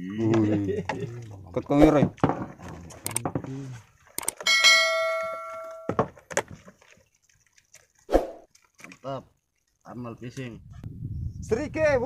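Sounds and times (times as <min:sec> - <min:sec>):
bell ding: 0:04.5 - 0:06.0.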